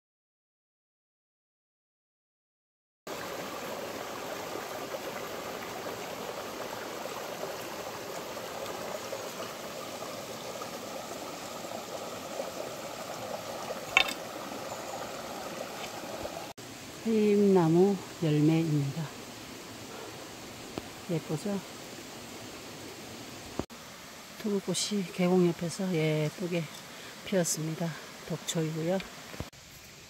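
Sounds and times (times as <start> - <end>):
stream rushing over rocks: 3.1 - 16.6.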